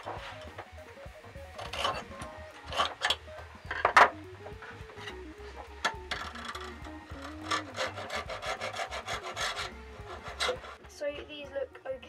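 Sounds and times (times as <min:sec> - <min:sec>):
scriber scraping aluminium: 0:01.6 - 0:04.2, 0:05.8 - 0:10.8.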